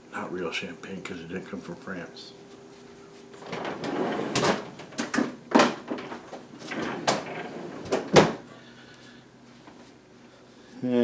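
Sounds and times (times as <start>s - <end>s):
door knocking and clattering: 3.5s - 8.4s.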